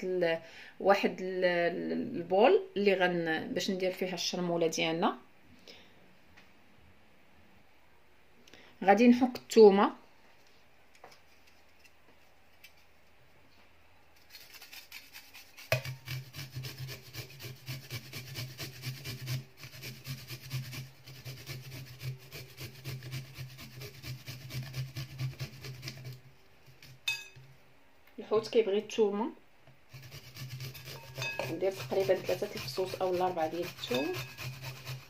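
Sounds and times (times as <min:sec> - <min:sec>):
garlic rasping on metal grater: 0:14.3 - 0:26.2, 0:29.9 - 0:35.0.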